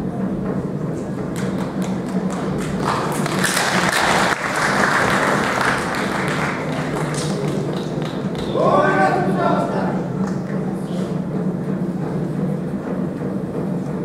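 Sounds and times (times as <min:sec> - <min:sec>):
steady low hum: 0:00.0 - 0:14.0
audience applauding: 0:01.3 - 0:08.8.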